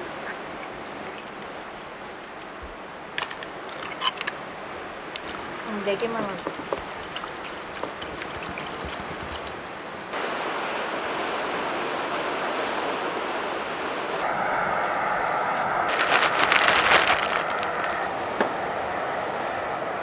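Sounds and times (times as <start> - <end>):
crackling: 15.9 - 18.1
sea surf washing over rocks: 15.9 - 18.4.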